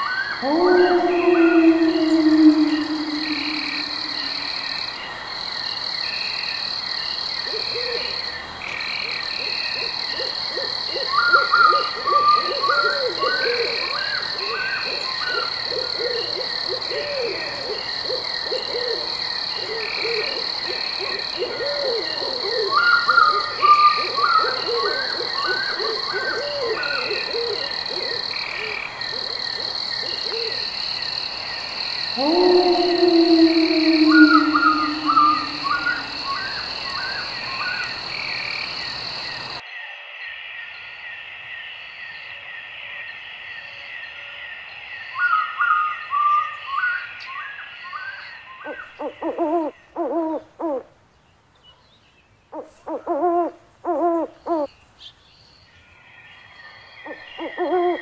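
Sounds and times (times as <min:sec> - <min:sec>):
low wavering croaking calls: 0:00.0 - 0:05.1, 0:32.0 - 0:38.4, 0:48.7 - 0:50.8, 0:52.6 - 0:54.7, 0:57.0 - 0:58.0
animal chirping: 0:00.4 - 0:04.6, 0:32.2 - 0:36.6
high-pitched drone: 0:00.4 - 0:04.7, 0:32.2 - 0:36.5
falling animal call: 0:00.4 - 0:04.8, 0:32.2 - 0:36.6.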